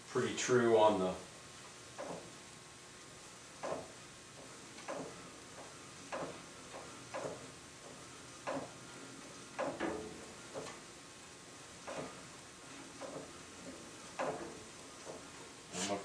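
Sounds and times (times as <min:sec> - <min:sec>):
bandsaw rocking knock: 0:01.9 - 0:02.4, 0:03.6 - 0:10.8, 0:11.8 - 0:15.4.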